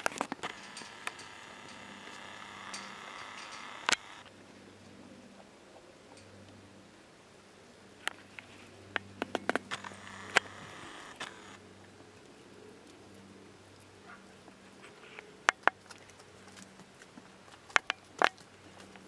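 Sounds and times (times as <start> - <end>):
metal chain clinking: 0.0 - 5.0, 7.9 - 9.0, 12.2 - 15.1.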